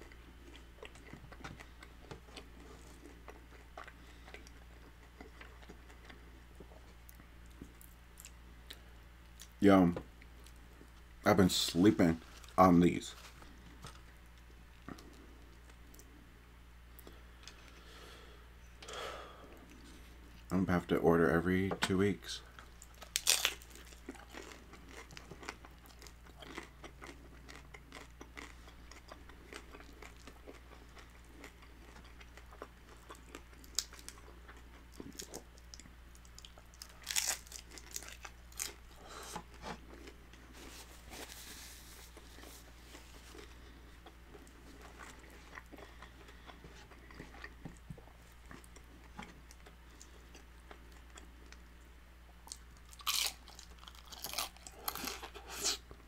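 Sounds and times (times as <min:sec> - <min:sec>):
crunching and chewing tacos: 0:00.0 - 0:18.2, 0:22.0 - 0:56.0.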